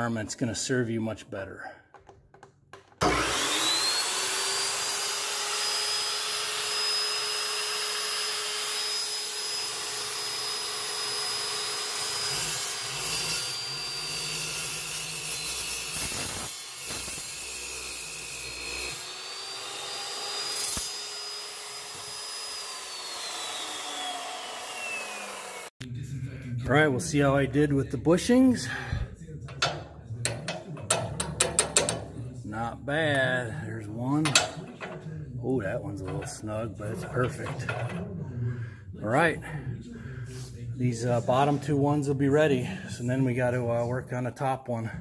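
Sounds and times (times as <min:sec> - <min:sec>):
chop saw motor whining: 0:03.0 - 0:25.7
saw cutting through metal: 0:03.0 - 0:25.8, 0:26.8 - 0:38.4.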